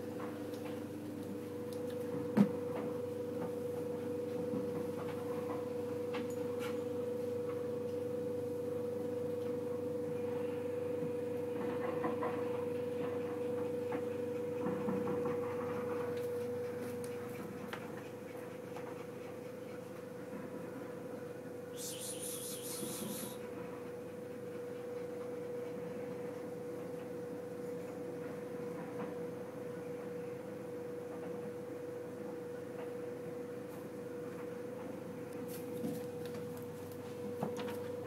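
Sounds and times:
steady hum: 21.7 - 23.6.

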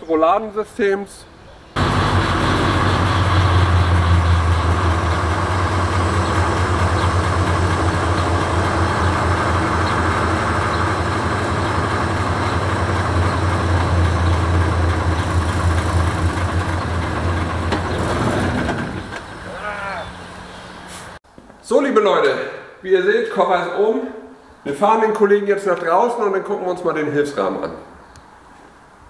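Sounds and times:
diesel engine idling: 1.8 - 21.2.

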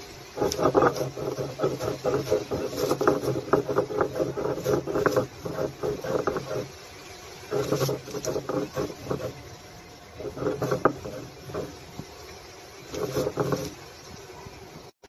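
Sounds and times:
stone grinding seeds: 0.4 - 6.8, 7.4 - 9.4, 10.2 - 11.9, 12.8 - 13.8.

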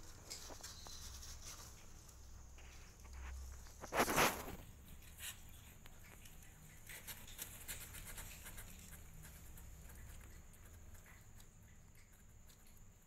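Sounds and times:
kitten claws scratching cardboard: 3.0 - 12.9.

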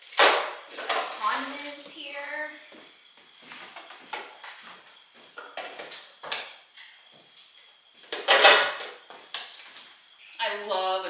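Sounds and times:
bottles and jars knocking and clinking: 8.1 - 9.0.

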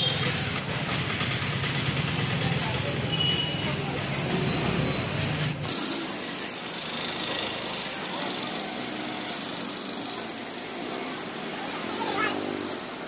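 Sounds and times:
traffic and motor noise: 0.0 - 13.0.

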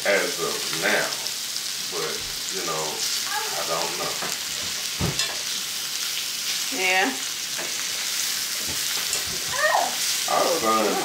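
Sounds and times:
food sizzling in oil: 0.0 - 11.0.

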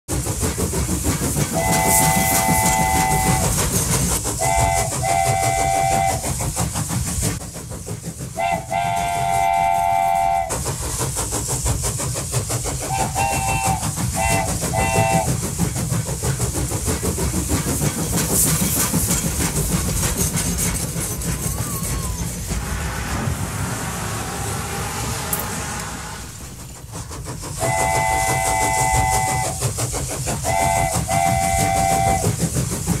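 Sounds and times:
electronic train horn: 1.6 - 3.4, 4.4 - 6.2, 8.4 - 10.5, 12.9 - 15.3, 27.6 - 29.6, 30.4 - 32.2
toy trains rattling on track: 10.6 - 22.4.

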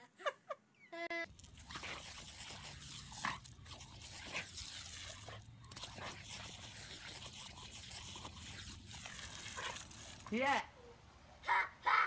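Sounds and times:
faint background noise: 0.0 - 12.0
dog chewing: 1.3 - 10.4.

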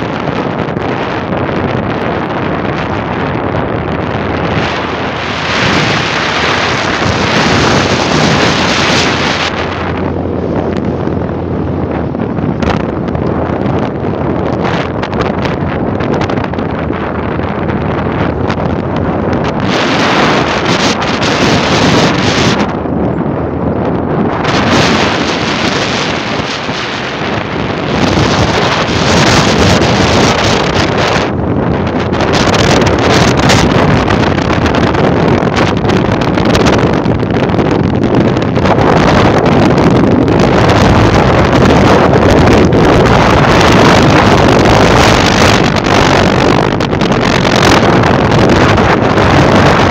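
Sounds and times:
low vehicle drone: 0.0 - 49.9
wind buffeting microphone: 0.0 - 49.9.

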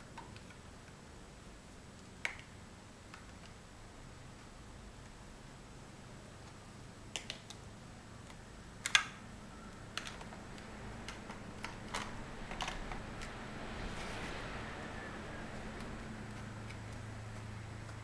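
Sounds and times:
plastic blocks clicking together: 9.9 - 10.4.

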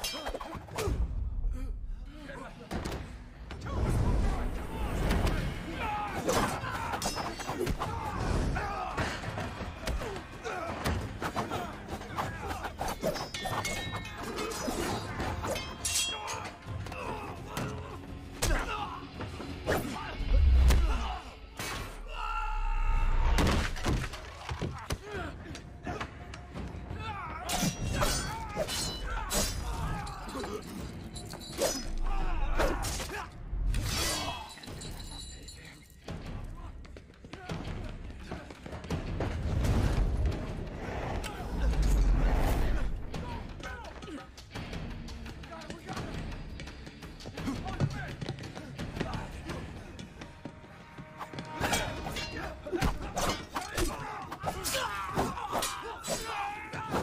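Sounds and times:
sword blades clashing: 0.0 - 0.6, 6.2 - 8.0, 12.2 - 16.6, 27.5 - 33.2, 33.8 - 35.4, 51.6 - 57.0
background music: 0.0 - 57.0
film score: 0.0 - 57.0
men grunting and yelling: 3.6 - 13.0, 13.6 - 23.4, 24.4 - 34.8, 41.2 - 44.4, 51.6 - 57.0.

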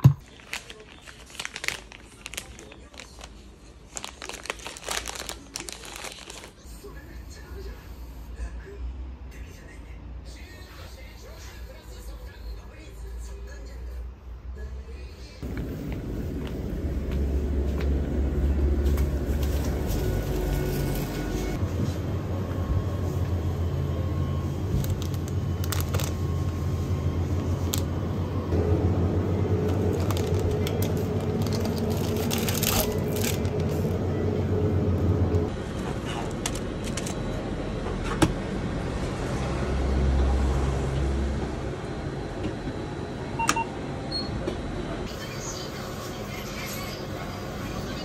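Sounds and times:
packaging clicks and rustles: 0.2 - 6.6, 24.7 - 26.6, 29.5 - 34.0
steady low hum: 15.4 - 38.9.

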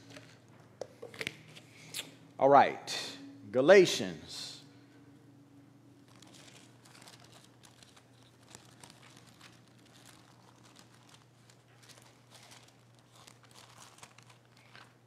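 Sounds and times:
low electrical hum: 0.0 - 15.0
thin pages rustling: 6.0 - 15.0.

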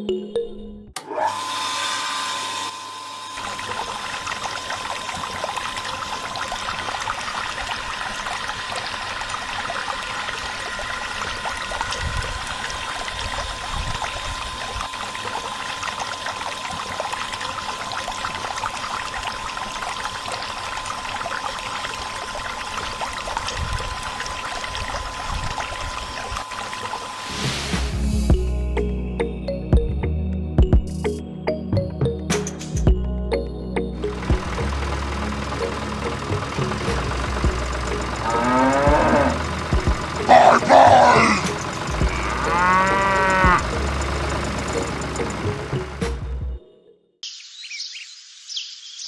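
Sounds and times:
pump motor whine: 1.0 - 28.5, 34.0 - 46.5
water pouring and splashing: 3.4 - 28.0.

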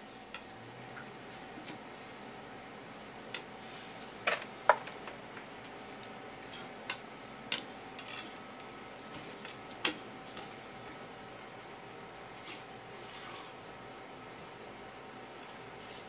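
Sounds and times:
knife scraping board: 12.4 - 13.7.

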